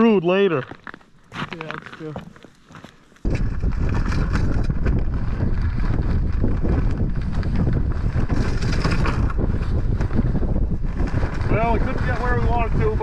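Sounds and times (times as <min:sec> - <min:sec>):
wind buffeting microphone: 0:03.2 - 0:13.0.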